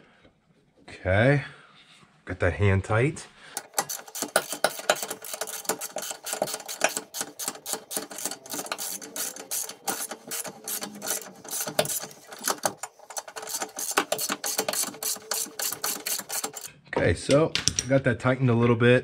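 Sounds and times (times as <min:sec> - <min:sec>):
socket ratchet clicking: 0:03.6 - 0:16.7.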